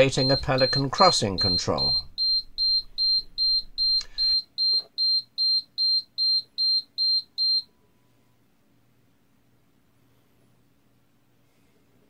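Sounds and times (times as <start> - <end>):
high-pitched buzzer beeping: 0.0 - 7.7.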